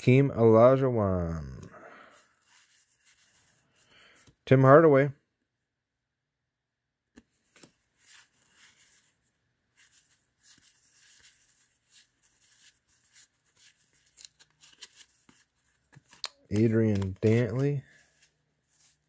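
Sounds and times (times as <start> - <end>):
trading cards rustling: 2.1 - 4.4, 7.2 - 19.0.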